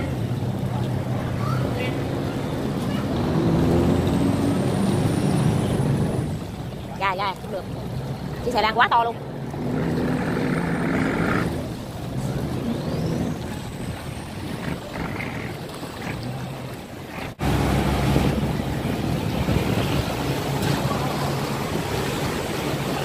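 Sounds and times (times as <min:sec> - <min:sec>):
barge engine running: 0:00.0 - 0:23.0
water rushing and churning: 0:00.0 - 0:23.0.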